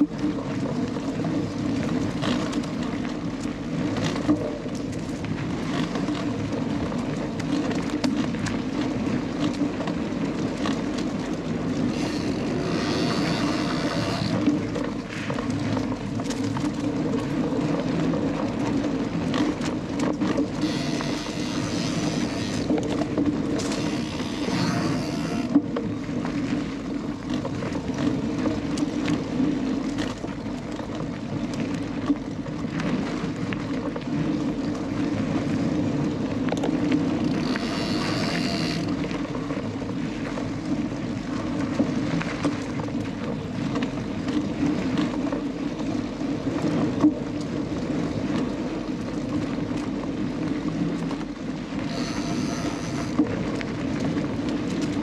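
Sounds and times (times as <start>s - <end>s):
bike rattles and knocks: 0.0s - 35.5s, 36.4s - 40.5s, 51.8s - 55.0s
bike tyre rumble: 0.0s - 55.0s
high-pitched buzz: 11.9s - 14.4s, 20.6s - 22.7s, 23.6s - 25.6s, 37.4s - 39.0s, 51.9s - 53.2s.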